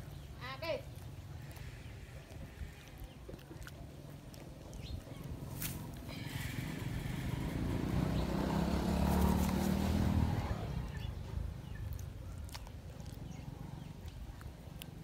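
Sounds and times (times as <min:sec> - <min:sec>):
vehicle engine passing by: 0:05.2 - 0:14.1.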